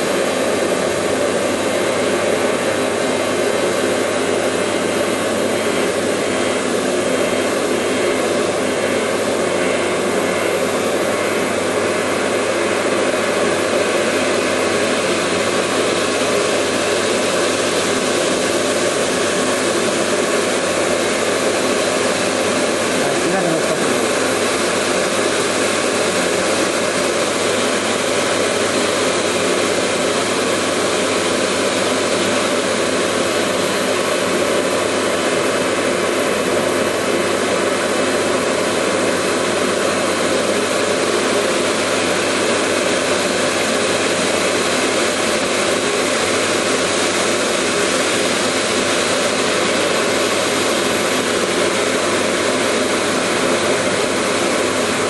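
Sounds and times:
laser cutting machine running: 0.0s - 55.0s.

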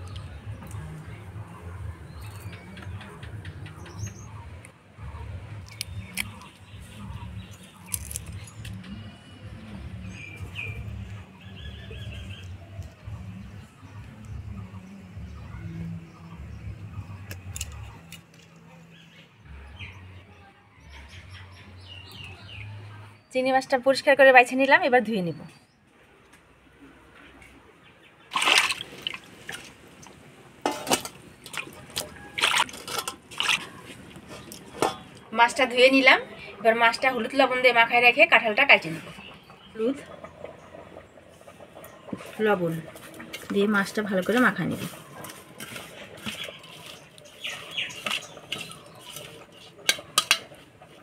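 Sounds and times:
wet squishing of prawns: 5.6s - 8.8s, 28.3s - 30.1s, 31.0s - 35.2s, 44.7s - 51.0s
water splashing in bowl: 28.3s - 33.8s
clicks against metal bowl: 47.9s - 50.6s.

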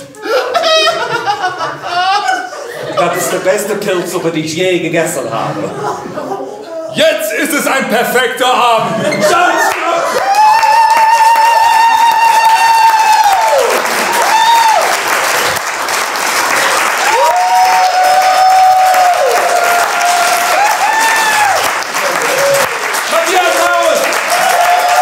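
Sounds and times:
audience applauding: 9.2s - 25.0s.

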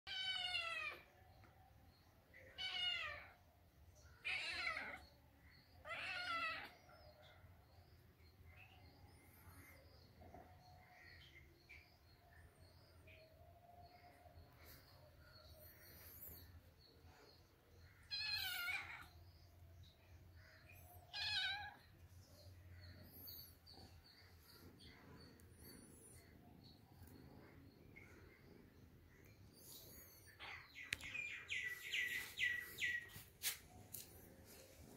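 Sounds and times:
cat meowing: 0.1s - 1.0s, 2.6s - 3.4s, 4.2s - 5.0s, 5.8s - 6.8s, 18.1s - 19.1s, 21.1s - 21.9s.

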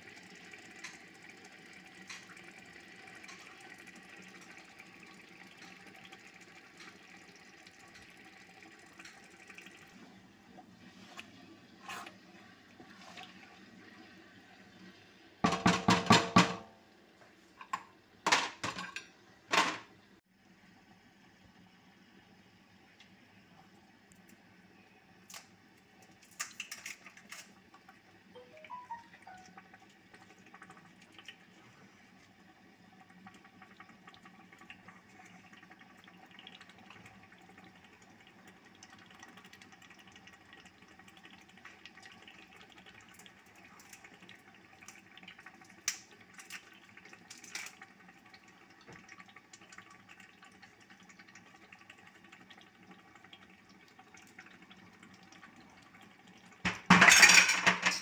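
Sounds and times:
stew simmering and bubbling: 0.0s - 58.0s.

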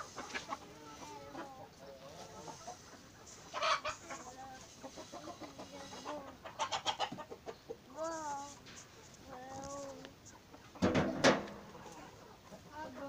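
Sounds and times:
hens clucking: 0.0s - 13.0s
loud chicken calls: 2.1s - 7.8s.

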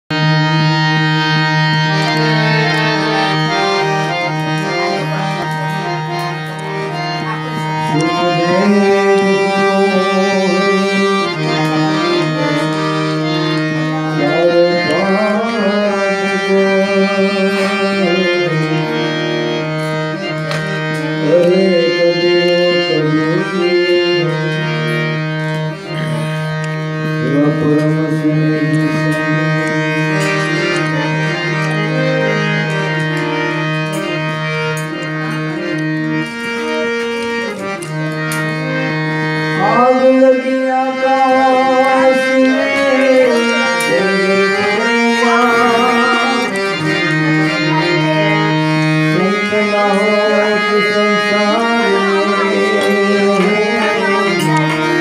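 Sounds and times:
harmonium playing: 0.0s - 55.0s
man singing: 7.9s - 12.6s, 14.0s - 19.0s, 21.2s - 24.7s, 27.2s - 31.0s, 39.6s - 55.0s.

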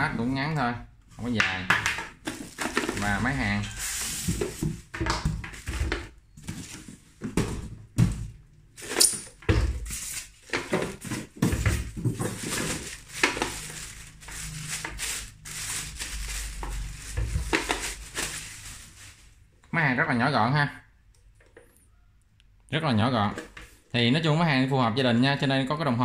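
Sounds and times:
plastic bag crinkling: 2.2s - 4.8s, 8.8s - 19.5s
polystyrene foam rubbing: 2.5s - 4.9s, 9.8s - 19.5s.

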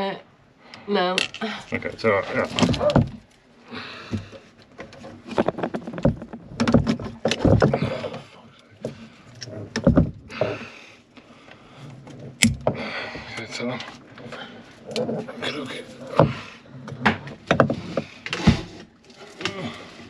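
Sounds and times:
knocks and clunks on metal and wood: 2.2s - 3.3s, 4.0s - 10.8s, 12.0s - 19.8s.

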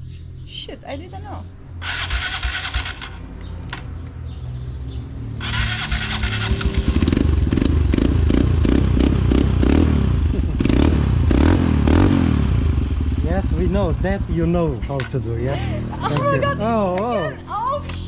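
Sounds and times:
motorcycle starter cranking: 1.8s - 3.2s, 5.4s - 7.4s
motorcycle engine running: 1.8s - 3.6s, 5.4s - 18.0s.

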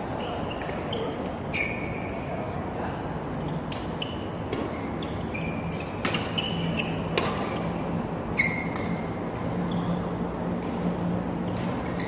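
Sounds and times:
shoes squeaking on court floor: 0.1s - 2.4s, 3.4s - 12.0s
rackets hitting shuttlecock: 5.9s - 7.7s, 8.6s - 9.6s.

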